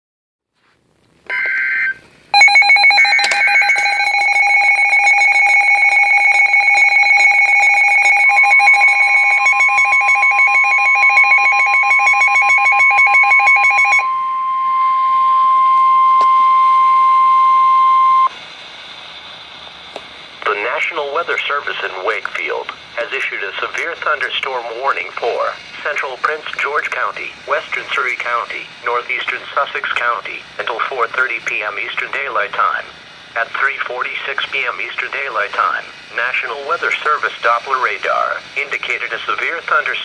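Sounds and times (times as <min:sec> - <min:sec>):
alarm beeping rapidly: 0:01.3 - 0:18.3
steady alarm tone: 0:01.3 - 0:18.4
low hiss: 0:17.0 - 0:40.0.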